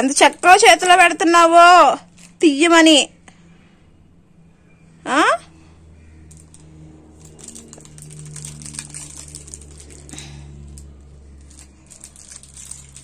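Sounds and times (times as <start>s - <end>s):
soap wrapper crinkling: 7.2s - 13.0s.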